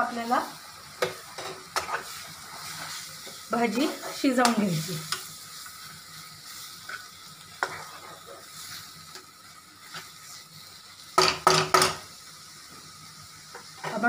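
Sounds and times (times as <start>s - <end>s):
faint steady sizzle: 0.0s - 14.0s
spatula scraping a pan: 1.0s - 10.4s
spatula knocking against pan: 11.2s - 12.0s.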